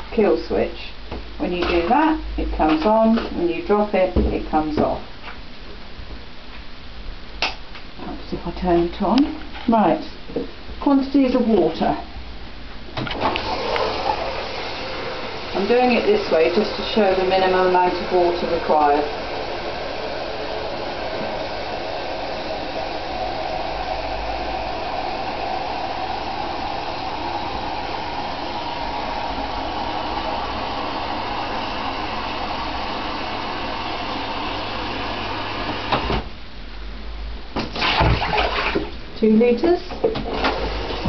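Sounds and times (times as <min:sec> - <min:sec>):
shower spraying water into bath: 0:13.2 - 0:36.0, 0:37.6 - 0:38.9.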